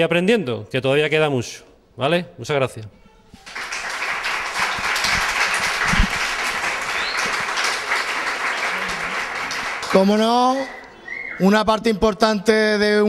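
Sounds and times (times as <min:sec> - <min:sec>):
audience applauding: 0:03.4 - 0:10.8.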